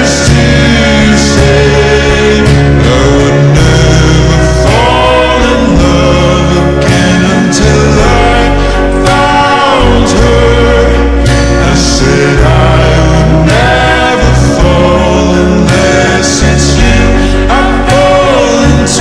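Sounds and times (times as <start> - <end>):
man singing pop ballad: 0.0 - 19.0
sustained low bass notes: 0.0 - 19.0.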